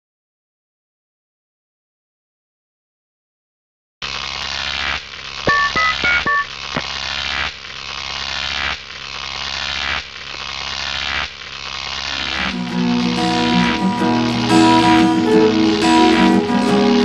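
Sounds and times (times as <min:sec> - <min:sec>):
two-tone beeps: 0:05.5 - 0:06.6.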